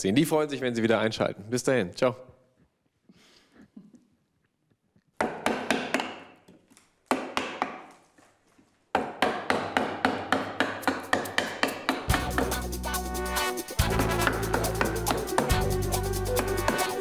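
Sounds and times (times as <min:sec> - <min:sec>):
wooden mallet striking gouge: 0:05.2 - 0:08.0, 0:08.9 - 0:12.6, 0:14.0 - 0:15.7, 0:16.4 - 0:17.0.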